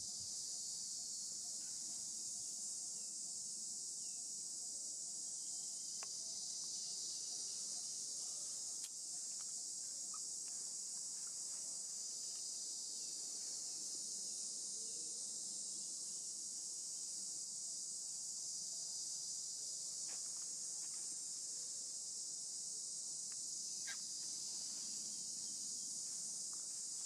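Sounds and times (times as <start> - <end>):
high-pitched insect chorus drone: 0.0 - 27.0
faint ticks: 6.0 - 6.8, 8.8 - 9.6, 23.2 - 24.0.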